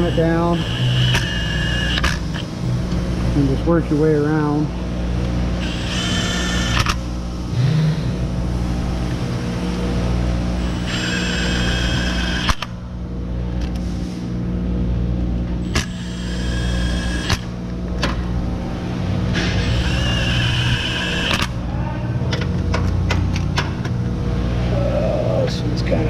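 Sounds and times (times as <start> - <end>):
cordless power tool motor whine: 0.0 - 2.5, 5.6 - 7.7, 10.6 - 12.9, 15.6 - 17.7, 19.4 - 21.6
low hum: 0.0 - 26.0.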